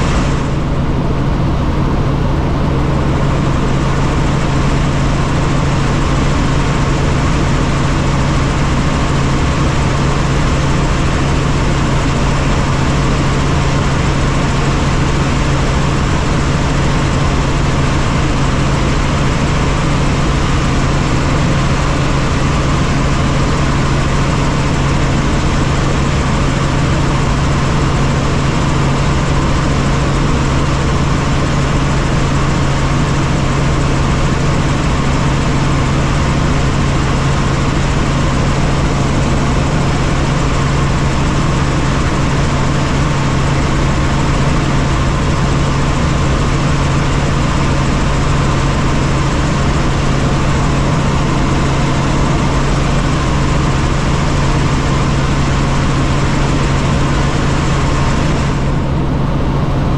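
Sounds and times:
helicopter cabin drone: 0.0 - 59.9.

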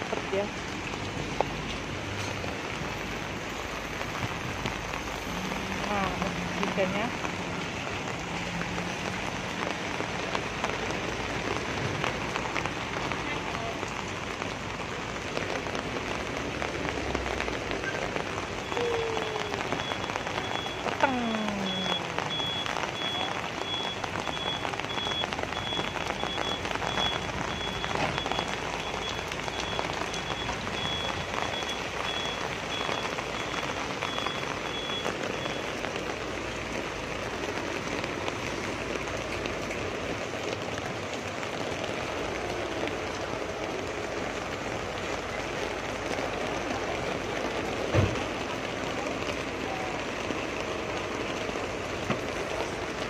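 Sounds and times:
heavy rain on wet street: 0.0 - 53.0.

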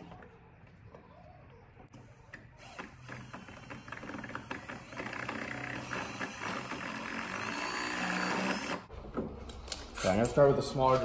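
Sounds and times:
cordless drill on steel: 2.6 - 8.9.

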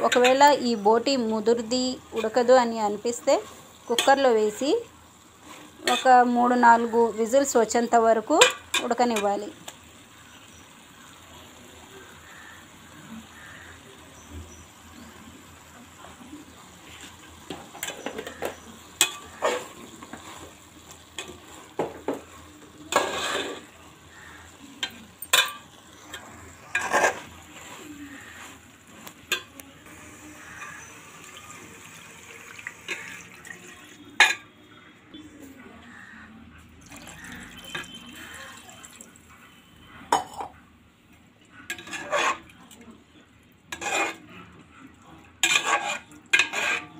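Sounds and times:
metal spoon scraping a pot: 0.0 - 0.6, 17.8 - 20.5, 22.9 - 29.5, 41.7 - 42.6, 43.7 - 44.3, 45.4 - 46.9
low frying sizzle: 0.0 - 46.9
spoon clanking against pot: 17.5 - 19.7, 24.8 - 27.3, 45.4 - 46.9
water poured into pot: 30.7 - 34.4, 36.8 - 39.3.

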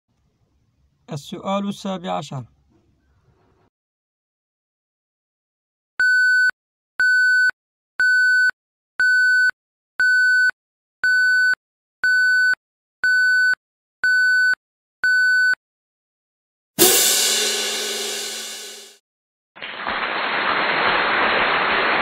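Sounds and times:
loud crash: 16.8 - 19.0.

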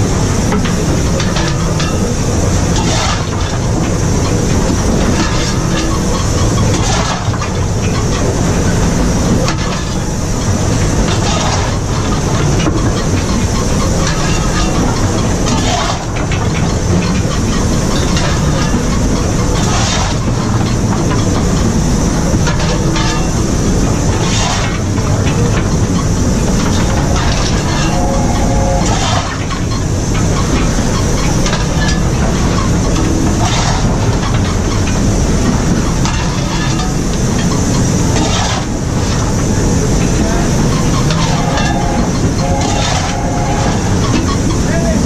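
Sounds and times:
steam hissing: 0.0 - 45.0
steam locomotive running noise: 0.0 - 45.0
coal shovel scraping: 19.6 - 20.3, 38.2 - 38.8, 41.2 - 44.0.

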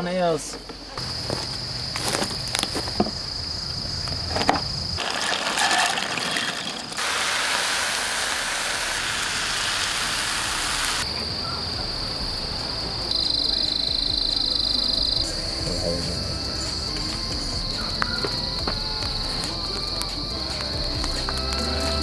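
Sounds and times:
crickets trilling: 0.0 - 22.0
food sizzling in a frying pan: 7.0 - 11.0.

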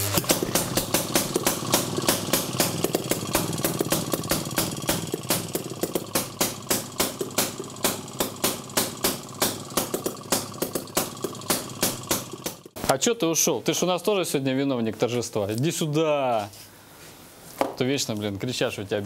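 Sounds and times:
two-stroke engine popping: 0.0 - 12.8.

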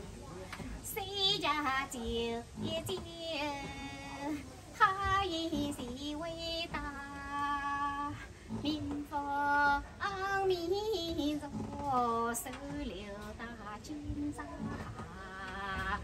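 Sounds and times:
woman singing unaccompanied: 0.0 - 16.0.

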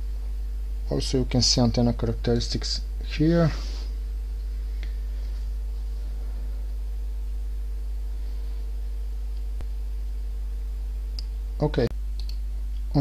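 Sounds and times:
low electrical hum: 0.0 - 13.0
faint click: 12.2 - 12.9.

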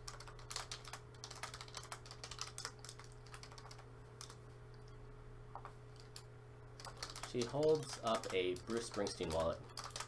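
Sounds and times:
computer keyboard typing: 0.0 - 4.4, 6.8 - 10.0
faint steady hum: 0.0 - 10.0.

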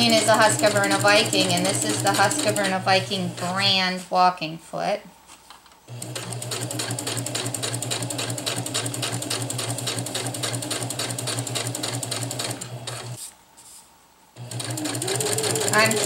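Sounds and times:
sewing machine stitching: 0.0 - 3.8, 5.9 - 13.2, 14.4 - 16.0.

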